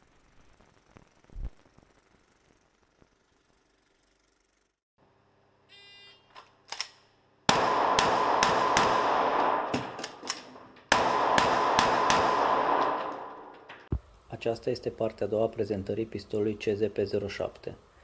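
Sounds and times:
pistol shots echoing indoors: 7.5s - 13.8s.

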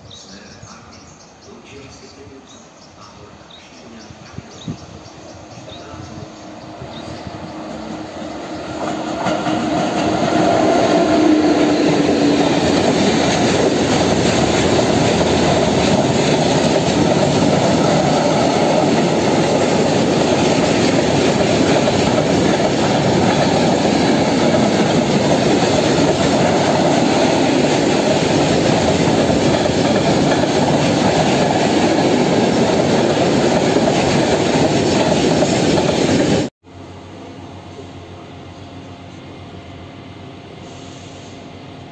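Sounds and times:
electric locomotive humming: 0.0s - 41.9s
train wheels on rails: 4.0s - 36.5s.

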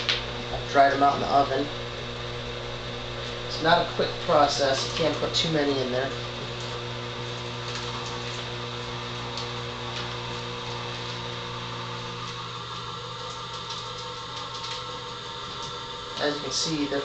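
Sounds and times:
oil press motor humming: 0.0s - 17.0s.

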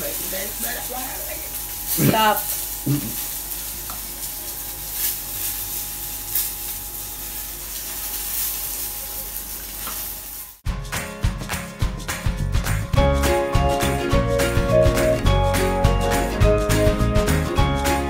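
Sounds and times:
food sizzling in hot oil: 0.0s - 10.6s
music: 10.6s - 18.0s.

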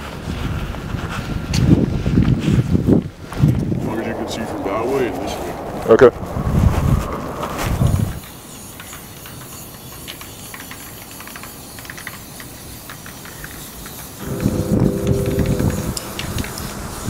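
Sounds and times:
spray-paint can hissing: 8.2s - 17.0s.

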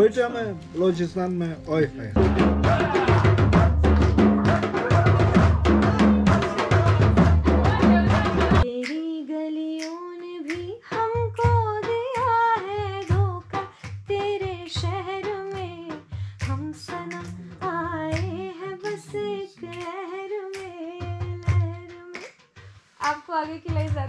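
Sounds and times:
woman singing: 7.5s - 22.3s, 23.0s - 24.0s.

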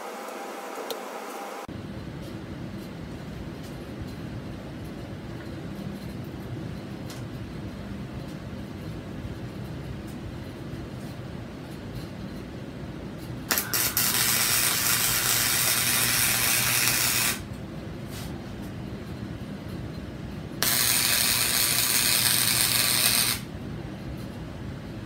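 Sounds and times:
welder humming: 0.0s - 1.7s, 13.5s - 17.5s, 20.6s - 23.5s
welding arc crackling: 13.5s - 17.5s, 20.6s - 23.5s.

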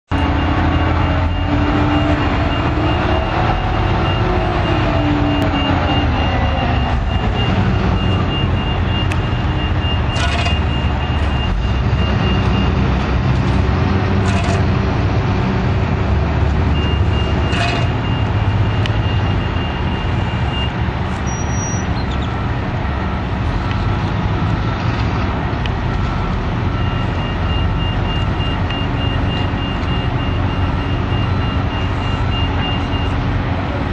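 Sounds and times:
heavy diesel machinery rumbling: 0.1s - 33.9s
backup alarm beeping: 0.2s - 12.9s, 16.7s - 21.9s, 26.0s - 33.2s.

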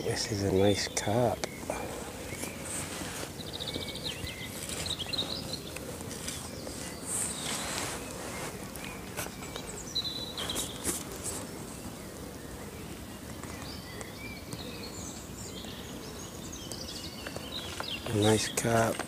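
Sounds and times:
birds chirping: 0.0s - 19.0s
outdoor background hiss: 0.0s - 19.0s
fishing gear clicks and knocks: 17.2s - 19.0s.

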